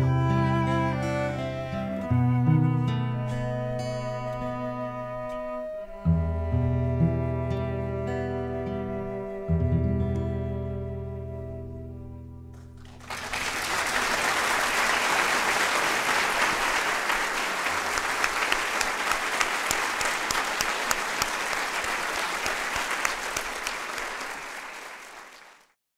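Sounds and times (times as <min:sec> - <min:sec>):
audience applauding: 0:12.6 - 0:25.8.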